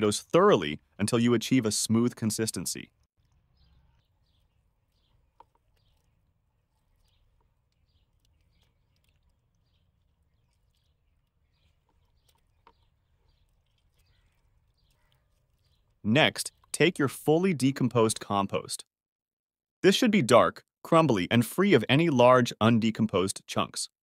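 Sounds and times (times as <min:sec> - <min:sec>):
faint bird chirps: 0:03.2 - 0:16.7.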